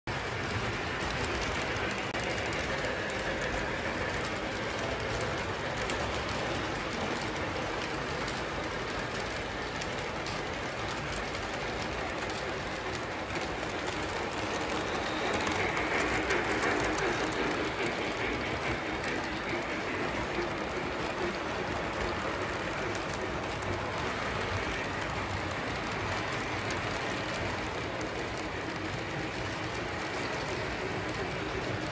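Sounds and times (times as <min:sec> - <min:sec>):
model train wheels clattering: 0:00.1 - 0:31.9.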